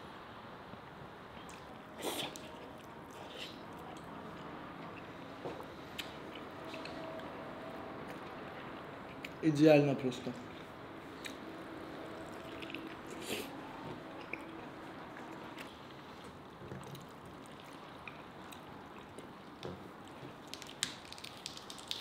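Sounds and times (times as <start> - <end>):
person chewing: 1.4 - 5.2, 5.9 - 7.0, 11.1 - 19.3
soft squishes and small clicks: 14.2 - 22.0.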